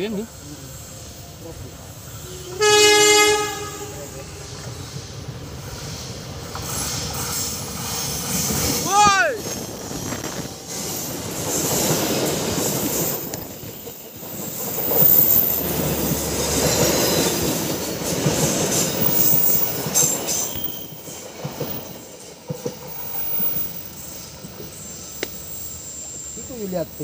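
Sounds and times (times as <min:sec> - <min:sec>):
train wheels clattering: 0:04.5 - 0:25.5.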